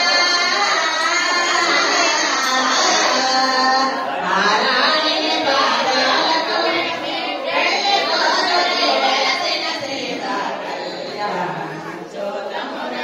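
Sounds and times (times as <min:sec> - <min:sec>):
high voices singing together: 0:00.0 - 0:13.0.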